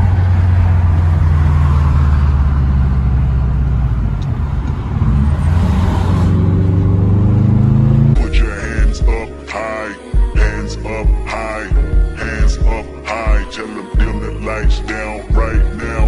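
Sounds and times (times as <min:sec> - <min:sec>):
car engine running: 0:00.0 - 0:09.5
road noise: 0:00.0 - 0:16.0
music: 0:08.2 - 0:16.0.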